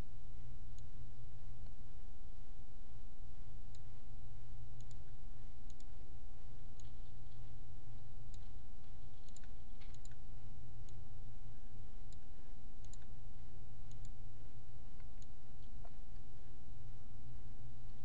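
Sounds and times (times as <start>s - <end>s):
steady low hum: 0.0s - 18.0s
computer mouse clicks: 4.8s - 5.1s, 5.7s - 5.9s, 6.7s - 7.1s, 9.2s - 10.2s, 12.1s - 13.1s, 13.9s - 14.2s, 15.0s - 15.9s.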